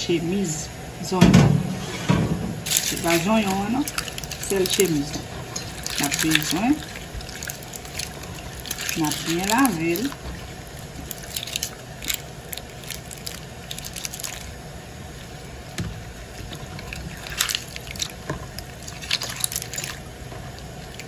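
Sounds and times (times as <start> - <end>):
hand squeezing onion skins in water: 2.6 - 21.0
water splashes: 2.6 - 21.0.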